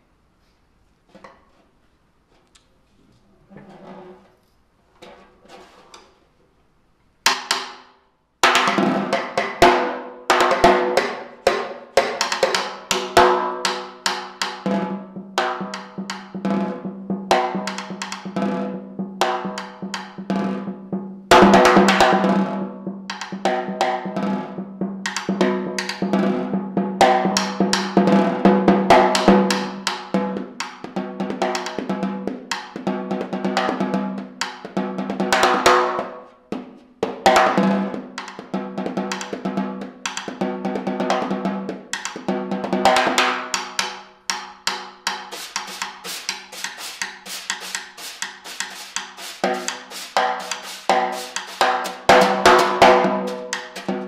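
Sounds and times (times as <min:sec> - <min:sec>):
snare drum rolls and hits: 0:21.3 - 0:22.6, 0:40.2 - 0:54.0.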